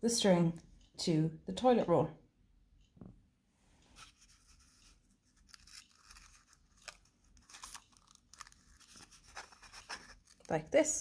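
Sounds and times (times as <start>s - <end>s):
sticky tape crackling: 4.2s - 11.0s.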